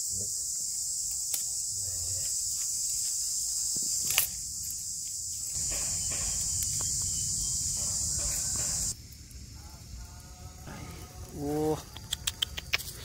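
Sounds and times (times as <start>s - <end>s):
insects droning: 0.0s - 13.0s
sharp clicks: 11.9s - 13.0s.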